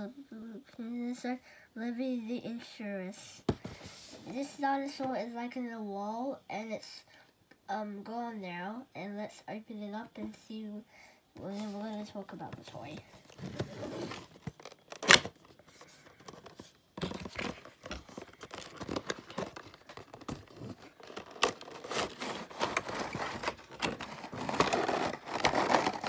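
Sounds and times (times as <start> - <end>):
cardboard scraping: 12.7 - 26.0
paper rustling: 12.8 - 26.0
plastic crinkling: 13.2 - 26.0.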